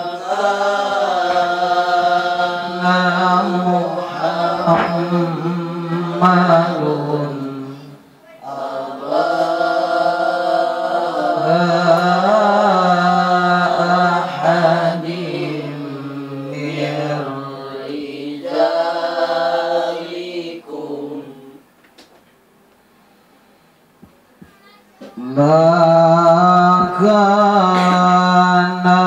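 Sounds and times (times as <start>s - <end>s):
man chanting melodic recitation: 2.5s - 8.0s, 25.2s - 29.0s.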